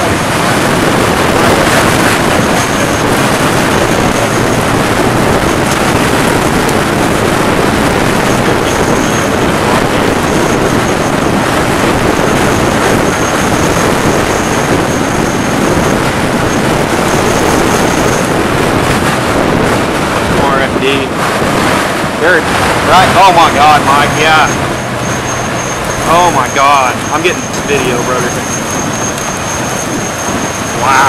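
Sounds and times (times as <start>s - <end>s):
road noise: 0.0s - 31.0s
storm wind rushing: 0.0s - 31.0s
faint high whine: 22.9s - 31.0s.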